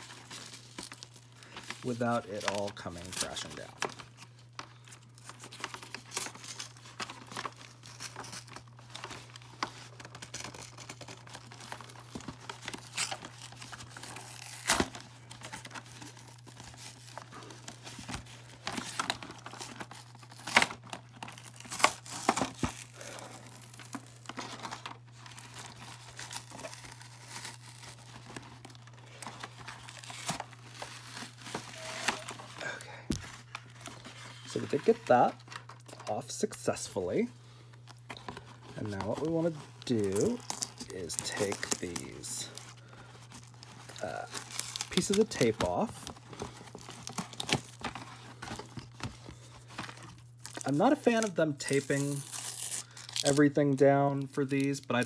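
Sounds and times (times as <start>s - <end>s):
packaging crinkling: 0.0s - 55.0s
cardboard and paper tearing: 5.2s - 35.7s, 38.1s - 53.5s
packaging snapping: 37.9s - 49.1s.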